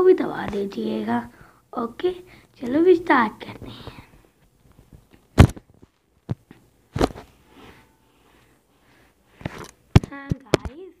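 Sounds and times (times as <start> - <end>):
faint rustling: 2.6 - 10.3.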